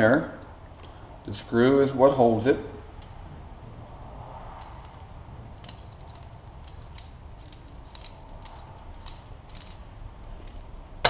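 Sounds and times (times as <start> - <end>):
steady low hum: 0.0 - 11.0
small metal clicks and taps: 5.6 - 10.7.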